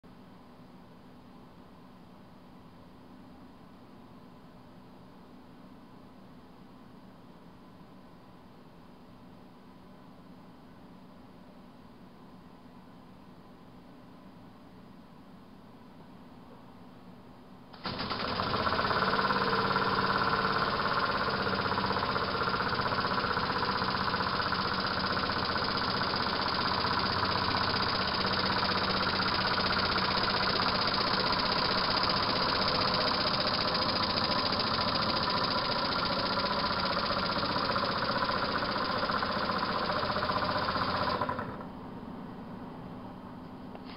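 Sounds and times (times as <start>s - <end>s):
model steam engine running: 17.8s - 41.6s.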